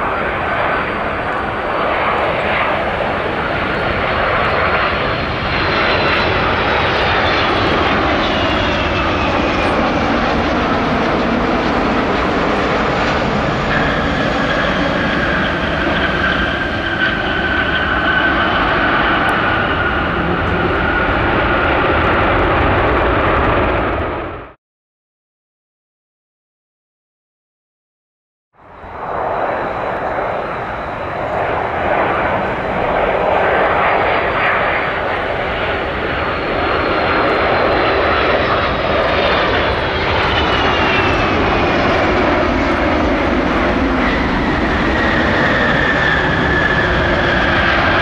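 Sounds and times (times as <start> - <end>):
jet engine whine: 0.0 - 24.6, 28.6 - 48.0
jet engines rumbling: 0.0 - 24.6, 28.6 - 48.0.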